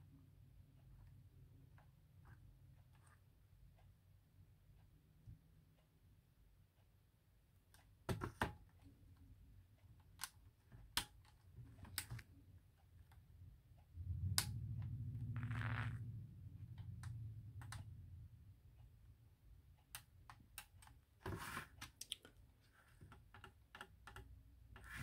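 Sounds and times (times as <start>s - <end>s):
steady low hum: 12.4s - 19.8s.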